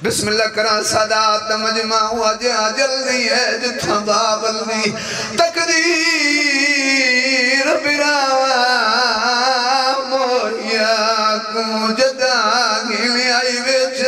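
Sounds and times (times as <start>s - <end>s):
man chanting into a microphone: 0.0s - 14.0s.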